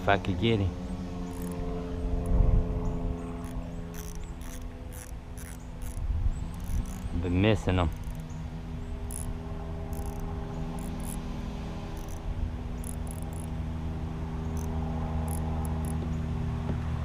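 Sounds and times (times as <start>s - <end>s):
steady low hum: 0.0s - 17.0s
insects chirping: 1.2s - 13.6s, 14.3s - 16.1s.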